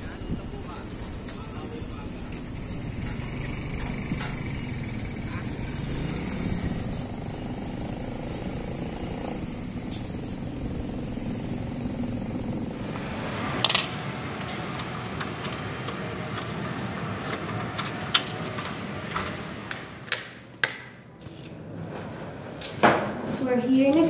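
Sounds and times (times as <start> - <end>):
street traffic rumble: 0.0 - 24.0
keys jangling: 13.3 - 14.1, 14.7 - 19.9, 21.2 - 21.6, 22.5 - 24.0.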